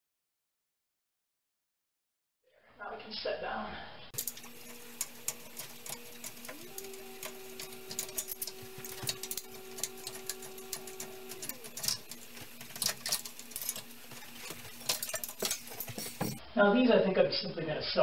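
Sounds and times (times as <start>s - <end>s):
drill spinning: 4.2s - 16.4s.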